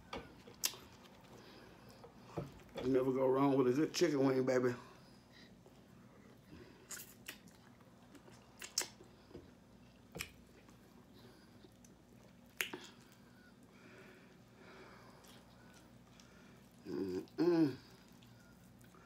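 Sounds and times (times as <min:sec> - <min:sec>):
person chewing: 0:00.2 - 0:02.8, 0:06.7 - 0:13.7, 0:14.9 - 0:19.0
wet mouth smacks and clicks: 0:06.9 - 0:07.5, 0:08.6 - 0:09.0, 0:12.5 - 0:13.0.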